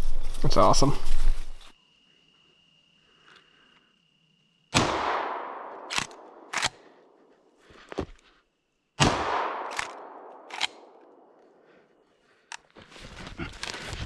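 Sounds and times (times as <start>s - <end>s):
shotgun shot with echo: 4.7s - 6.8s, 9.0s - 10.2s.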